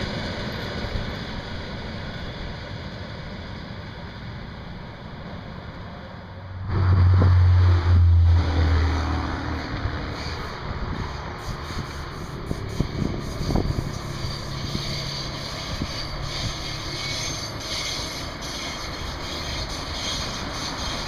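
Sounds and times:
electric train running: 0:00.0 - 0:05.8, 0:06.7 - 0:21.0
loud low rumble: 0:06.5 - 0:10.2.

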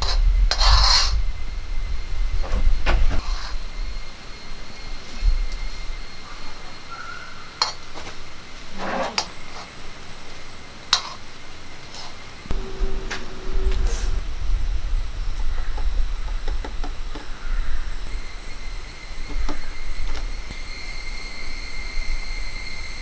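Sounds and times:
metal spatula scraping iron pan: 0:00.0 - 0:01.3, 0:08.7 - 0:09.8, 0:10.9 - 0:11.3
low rumble: 0:00.0 - 0:06.6, 0:12.5 - 0:20.6.

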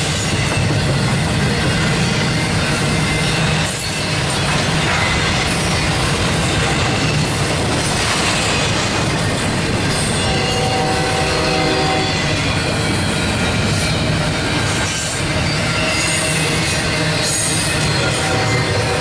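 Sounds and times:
train cars rumbling on rails: 0:00.0 - 0:19.0
wheel squeal: 0:11.8 - 0:18.7.

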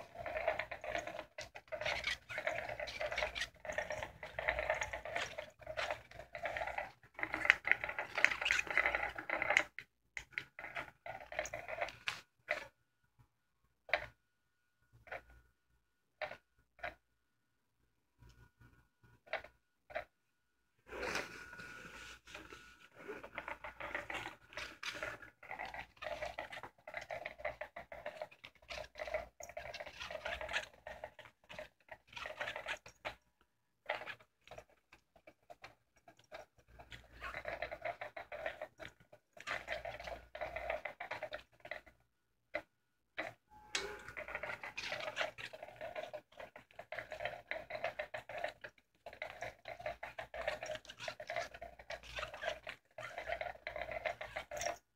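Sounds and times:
toy motor whirring clatter: 0:00.0 - 0:12.6, 0:23.2 - 0:33.2, 0:33.9 - 0:42.0, 0:42.6 - 0:54.9.

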